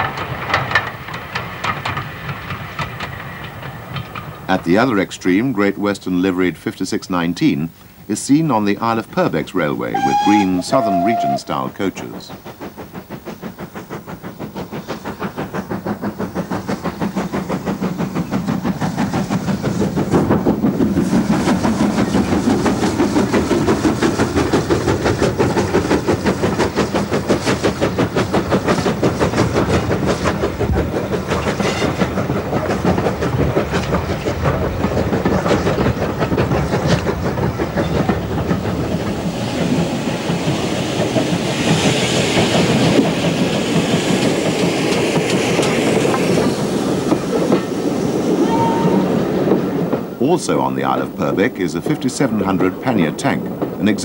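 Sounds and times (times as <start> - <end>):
steam locomotive chuffing: 0.0 - 54.0
train coaches rolling past: 0.0 - 54.0.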